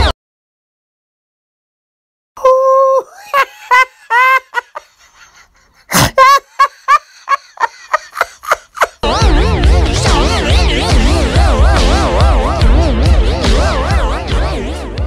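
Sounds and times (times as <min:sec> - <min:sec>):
woman laughing: 0:02.4 - 0:09.0
woman squealing and gasping: 0:02.4 - 0:09.0
music: 0:09.0 - 0:15.0.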